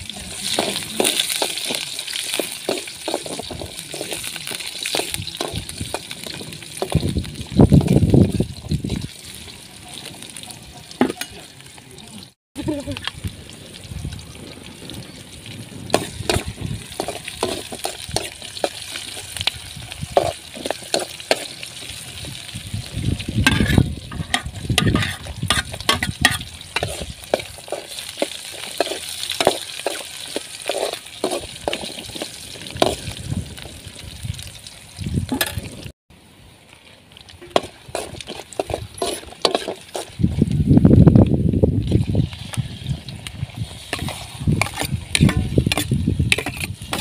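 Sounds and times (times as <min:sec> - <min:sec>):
onions sizzling in a metal bowl: 0:00.0 - 0:35.9, 0:37.4 - 0:47.0
metal spoon scraping a bowl: 0:00.4 - 0:07.0, 0:15.9 - 0:19.2, 0:23.5 - 0:32.2, 0:37.5 - 0:40.2, 0:43.8 - 0:47.0.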